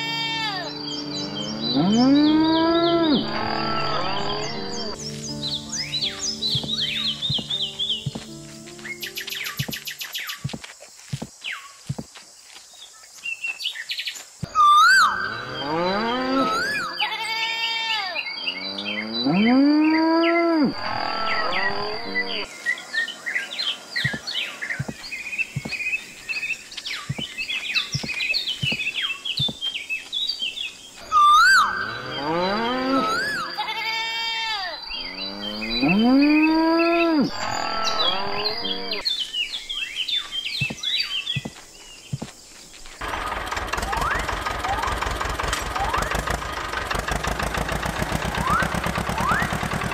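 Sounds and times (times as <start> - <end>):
farm animal calls: 0.0 - 5.0, 14.5 - 22.5, 31.0 - 39.0
birds chirping: 0.0 - 43.2
cattle mooing: 1.5 - 5.0, 31.8 - 39.0.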